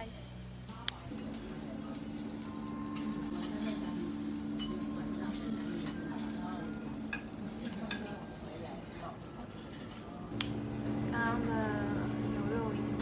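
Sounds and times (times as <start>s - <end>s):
food sizzling on griddle: 1.1s - 10.3s.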